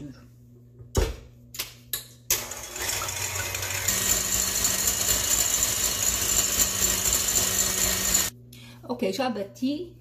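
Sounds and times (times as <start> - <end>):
stand mixer motor running: 2.4 - 8.3.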